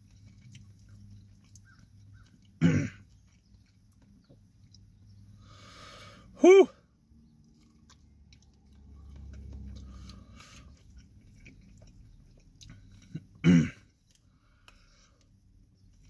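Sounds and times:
man chewing food: 0:00.0 - 0:16.0
man short loud vocal sound: 0:06.4 - 0:06.8.

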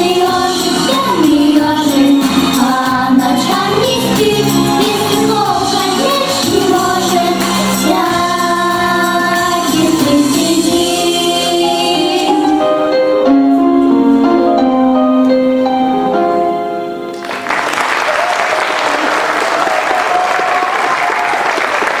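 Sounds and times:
piano notes: 0:00.0 - 0:17.6
audience applause: 0:17.1 - 0:22.0.

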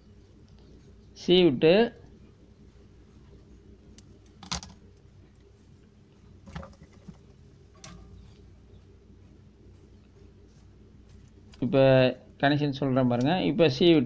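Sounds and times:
low steady hum: 0:00.0 - 0:14.0
wire clicks and rustles: 0:03.2 - 0:08.5, 0:09.7 - 0:11.7.

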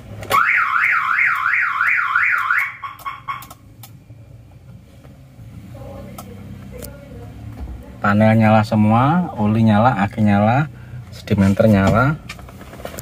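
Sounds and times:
car alarm siren warbling: 0:00.3 - 0:03.5.

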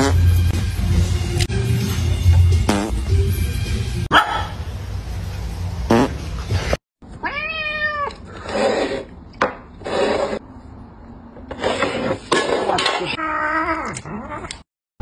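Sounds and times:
cat meowing: 0:07.2 - 0:08.2
short scraping noises: 0:08.3 - 0:10.4, 0:11.5 - 0:13.0.

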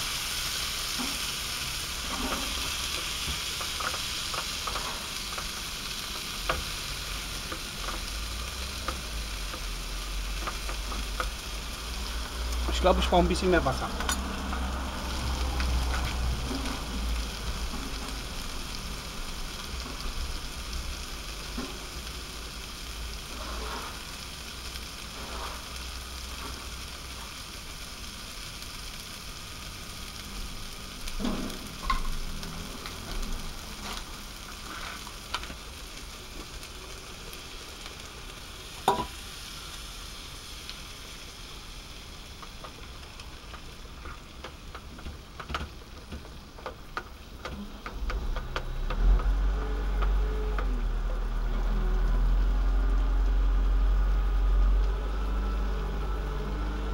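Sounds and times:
food sizzling in a frying pan: 0:00.0 - 0:56.9.

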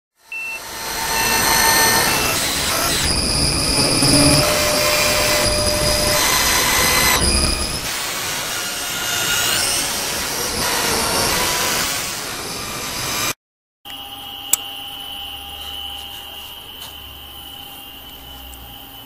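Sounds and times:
high whining tones: 0:00.3 - 0:13.3
deep rumble: 0:02.6 - 0:07.9.

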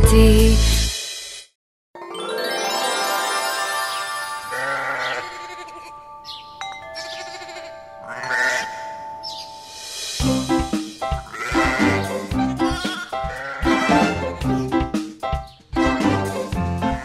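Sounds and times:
soft held chime notes: 0:02.9 - 0:10.2
sheep bleating: 0:04.5 - 0:06.0, 0:07.1 - 0:08.8, 0:11.2 - 0:14.6
backing music: 0:09.4 - 0:17.0.

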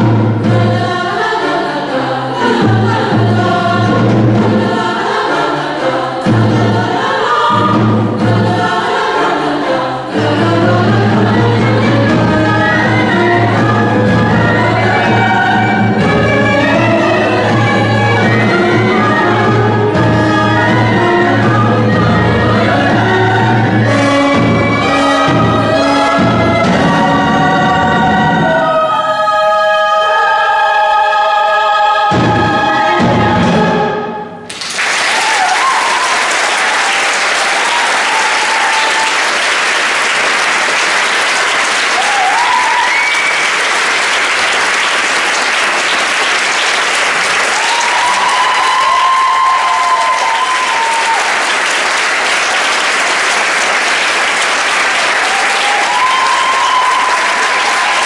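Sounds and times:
choir and orchestra performing: 0:00.0 - 0:34.6
audience applause: 0:34.5 - 0:58.0
audience cheering: 0:34.5 - 0:58.0.

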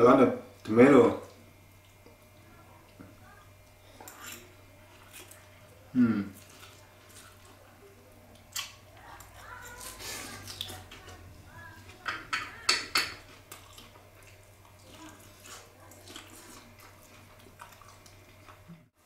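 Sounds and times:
cutlery clinking and scraping on plate: 0:04.0 - 0:04.5, 0:12.0 - 0:13.7.

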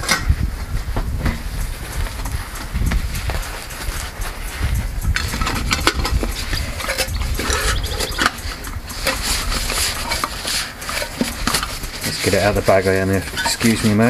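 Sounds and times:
low rumble: 0:00.0 - 0:09.8
rustling: 0:00.0 - 0:14.0.

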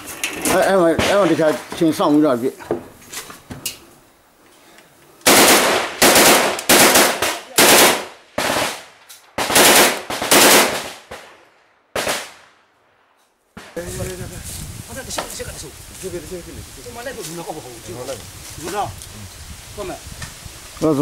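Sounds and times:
gunshot bursts: 0:05.3 - 0:11.4, 0:12.0 - 0:12.5.

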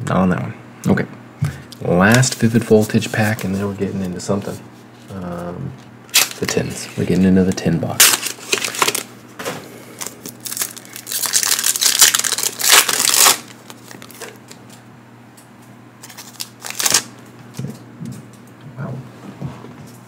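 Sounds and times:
plastic packaging crinkling: 0:06.1 - 0:09.2, 0:09.9 - 0:14.6, 0:16.0 - 0:17.1.

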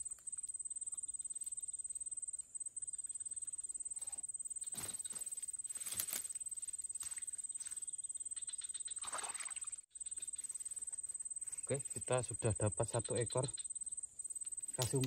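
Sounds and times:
rustling in grass: 0:04.6 - 0:07.9.

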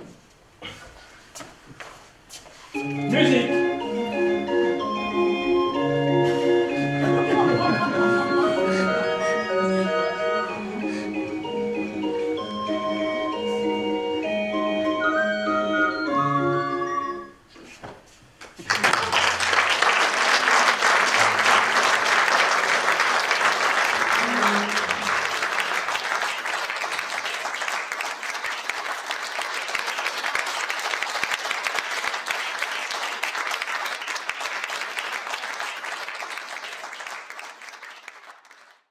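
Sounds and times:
audience applauding: 0:18.4 - 0:38.9.

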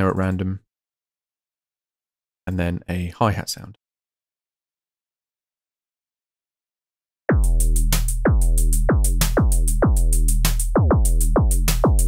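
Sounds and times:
synthesized kick drum: 0:07.3 - 0:12.0.

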